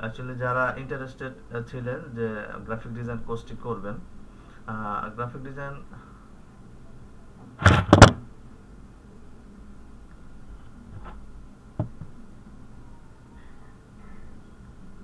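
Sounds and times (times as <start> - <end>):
loud double thump: 7.6 - 8.2.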